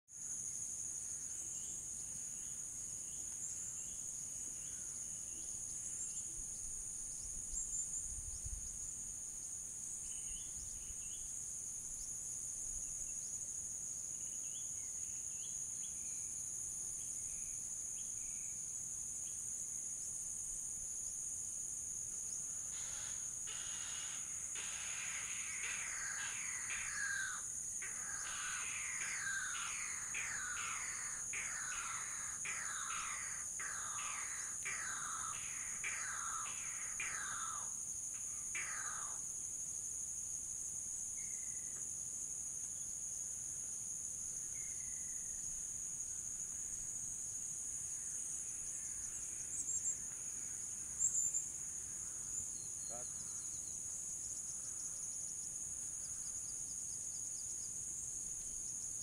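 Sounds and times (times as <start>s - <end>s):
crickets and cicadas droning: 0.1s - 59.0s
bird chirps: 22.5s - 39.3s
birds descending calls: 22.6s - 39.2s.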